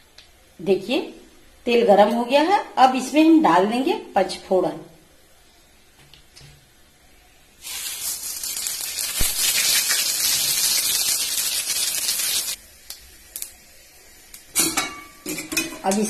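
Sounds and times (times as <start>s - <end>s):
spices sizzling and crackling in oil: 7.6s - 16.0s.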